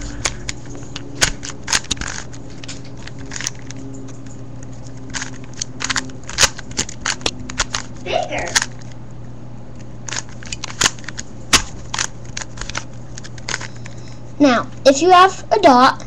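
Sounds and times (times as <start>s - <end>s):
low steady hum: 0.0s - 16.0s
puzzle cube plastic clicks: 0.1s - 3.8s, 4.9s - 7.9s, 10.1s - 14.0s.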